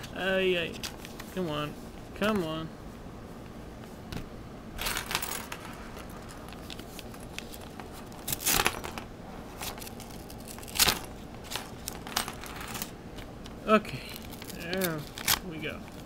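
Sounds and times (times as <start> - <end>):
paper envelope rustling and tearing: 6.1 - 12.1, 14.0 - 16.0.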